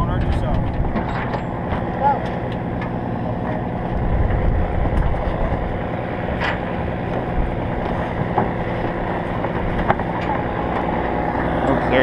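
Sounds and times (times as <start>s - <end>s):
knocks and rattles from cargo bed: 0.0s - 2.3s
truck engine running: 0.0s - 12.0s.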